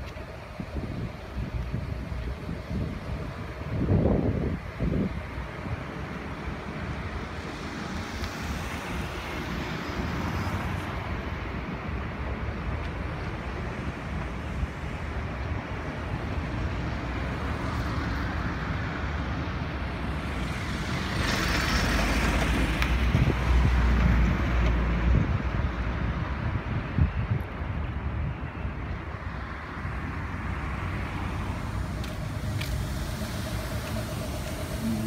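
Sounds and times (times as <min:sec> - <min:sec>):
road vehicle rumble: 0:00.0 - 0:35.0.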